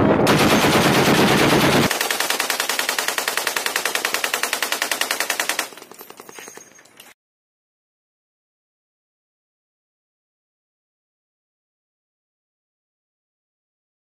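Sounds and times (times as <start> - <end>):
machine guns firing bursts: 0.2 - 6.3.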